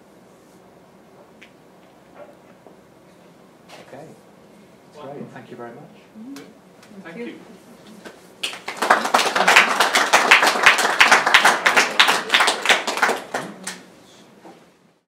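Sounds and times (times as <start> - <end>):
audience applauding: 8.4 - 13.9.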